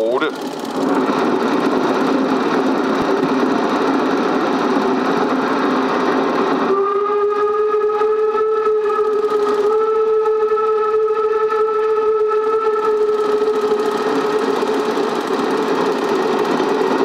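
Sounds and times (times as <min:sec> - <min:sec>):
steam whistle held note: 0:06.7 - 0:13.6.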